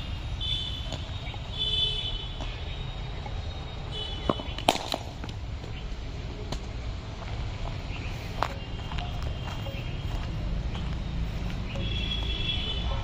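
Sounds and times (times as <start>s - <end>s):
cricket bat hitting ball: 4.2s - 5.4s.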